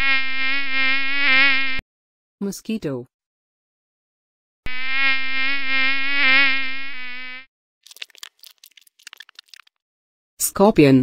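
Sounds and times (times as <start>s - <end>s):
mosquito buzzing: 0.0s - 1.8s, 4.7s - 7.5s.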